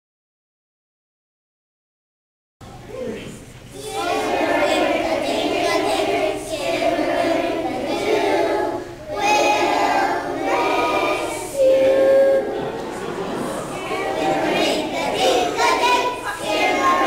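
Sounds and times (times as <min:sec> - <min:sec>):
children's choir singing: 0:03.7 - 0:17.0.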